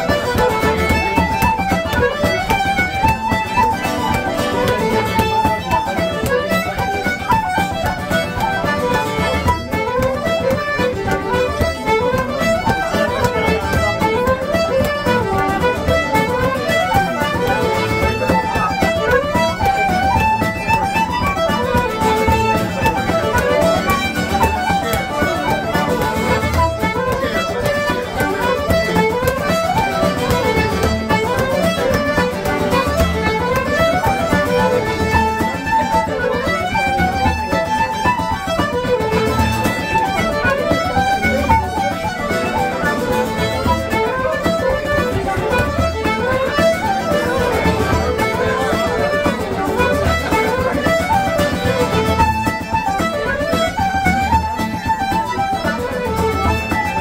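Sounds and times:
fiddles and flute playing: 0.0s - 57.0s
strummed guitar: 0.0s - 57.0s.

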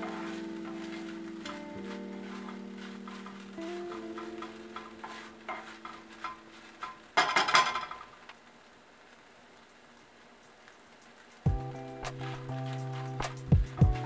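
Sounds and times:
spatula scraping frying pan: 0.0s - 8.1s.

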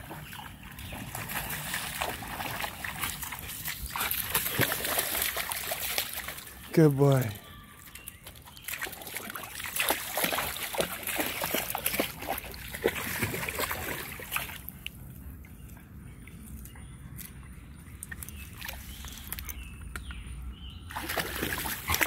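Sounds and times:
dog splashing through water: 0.0s - 6.7s, 7.8s - 14.8s, 20.9s - 22.0s.

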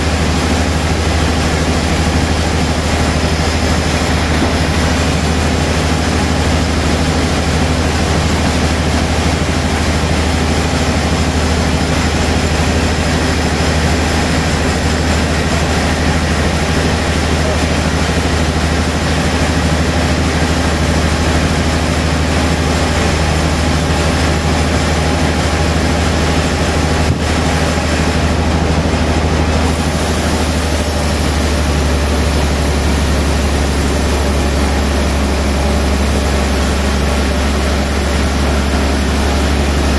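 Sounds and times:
low motor hum: 0.0s - 39.9s
band saw cutting log: 1.1s - 7.8s, 22.4s - 39.9s.

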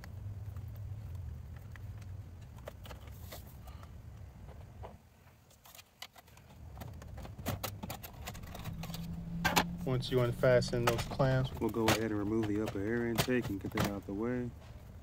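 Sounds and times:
low background rumble: 6.6s - 15.0s.

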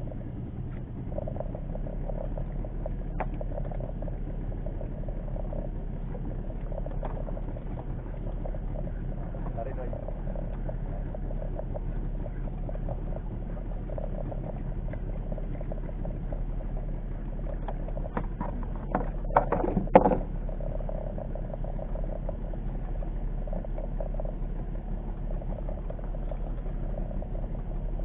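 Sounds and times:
boat engine rumble: 0.0s - 28.0s
sharp knocks and clicks: 17.6s - 20.3s.

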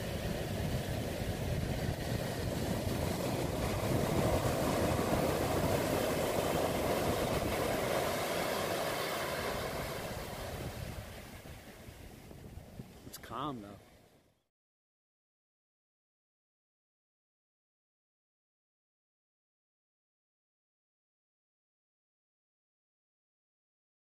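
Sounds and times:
wind buffeting microphone: 0.0s - 13.4s
ocean surf washing up: 0.0s - 14.1s.

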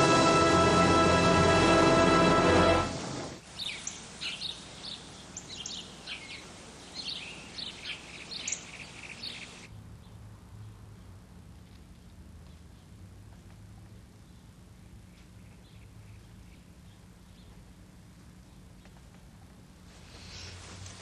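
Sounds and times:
music: 0.0s - 3.4s
birds chirping: 3.6s - 9.7s
faint low hum: 4.8s - 21.0s.

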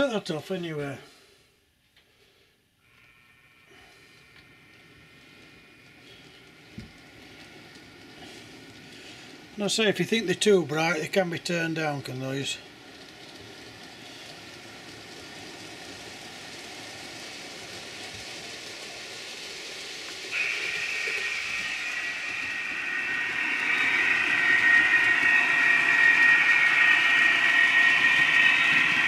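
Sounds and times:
model train wheels rumbling on track: 2.9s - 29.0s
high-pitched motor whine: 20.3s - 29.0s.

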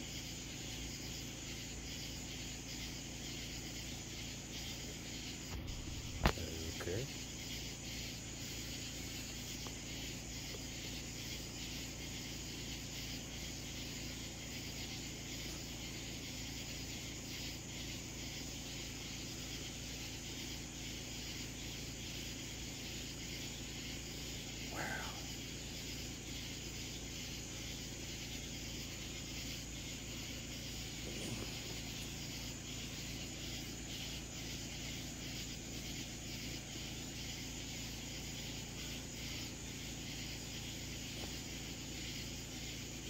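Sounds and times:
faint insect chirring: 0.0s - 43.0s
even hiss: 4.3s - 14.2s, 14.8s - 43.0s.

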